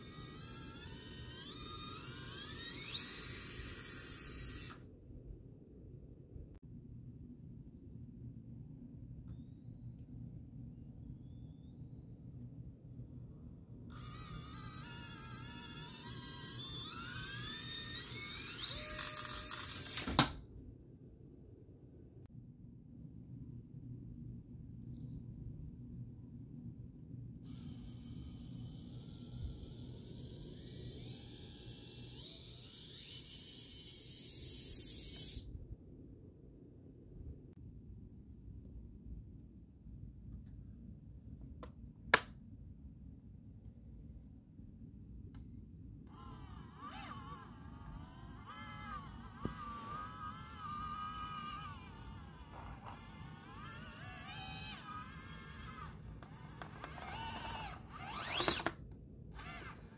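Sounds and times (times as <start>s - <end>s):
toy car motor whining: 0.0s - 4.9s, 13.9s - 20.2s, 27.5s - 35.5s, 46.1s - 59.9s.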